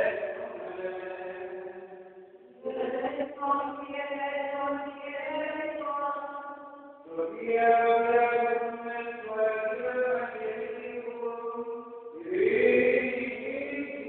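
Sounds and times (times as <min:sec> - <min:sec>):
solo voice chanting: 0:07.0 - 0:14.0.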